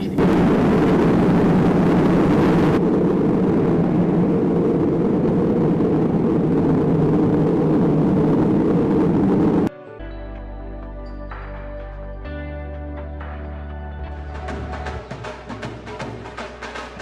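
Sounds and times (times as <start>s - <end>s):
loud rumbling roar: 0.2s - 9.7s.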